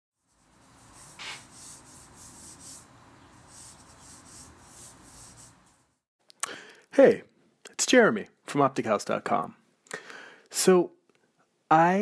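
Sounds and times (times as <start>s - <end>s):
pencil strokes scratching paper: 0.2s - 6.0s.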